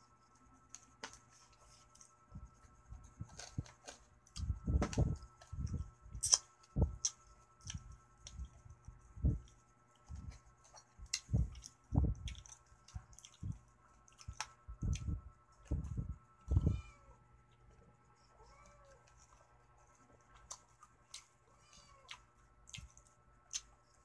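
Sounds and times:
wet chewing and lip smacks: 0:05.6 - 0:08.6, 0:10.7 - 0:15.9, 0:20.4 - 0:21.3, 0:22.0 - 0:23.8.

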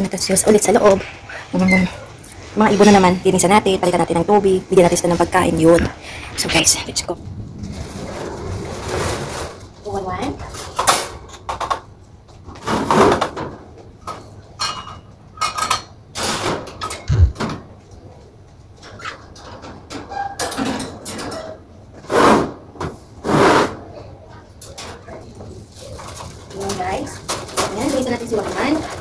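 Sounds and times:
household clatter and scraping: 0:00.3 - 0:17.5, 0:18.8 - 0:29.0
low thud: 0:17.1 - 0:17.5.

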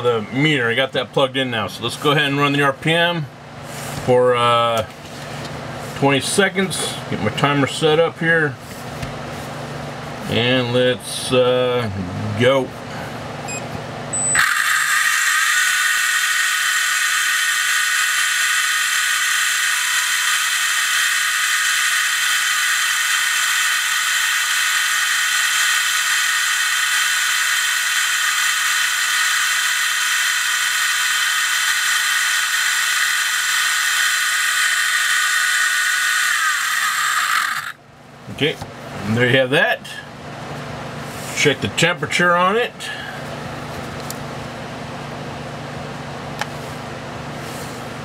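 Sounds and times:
electric motor high whine: 0:14.2 - 0:37.8.

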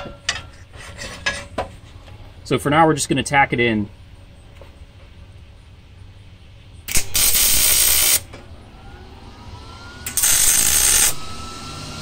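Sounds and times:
welder hissing: 0:06.9 - 0:08.4, 0:10.0 - 0:12.0.

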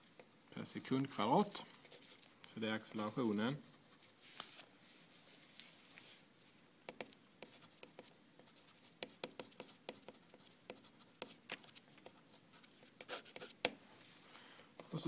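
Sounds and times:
pencil scratching on paper: 0:07.4 - 0:11.4, 0:12.0 - 0:13.6.

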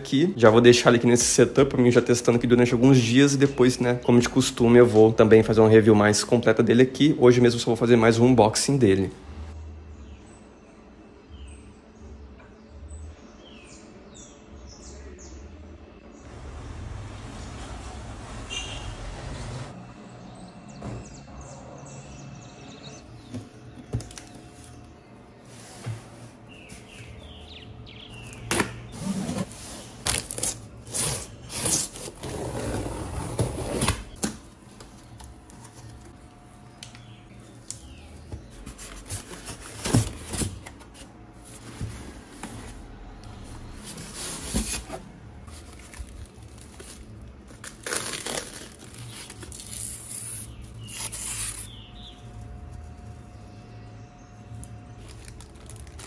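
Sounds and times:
cardboard and plastic rustling: 0:28.2 - 0:53.6, 0:54.5 - 0:56.0.

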